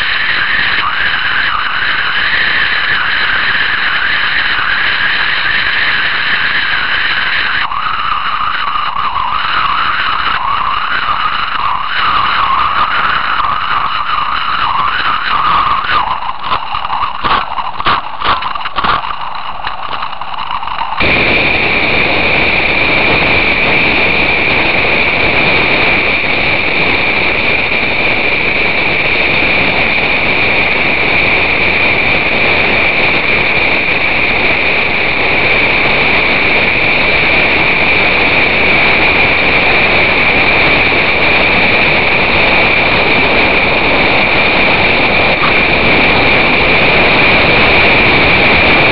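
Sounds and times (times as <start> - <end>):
crackling and knocking: 0.0 - 21.4
steady high tone: 0.0 - 22.8.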